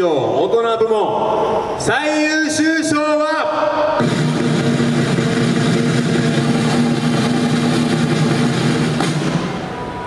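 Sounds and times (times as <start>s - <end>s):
drum roll: 3.9s - 10.0s
sharp ringing drum hit: 4.0s - 10.0s.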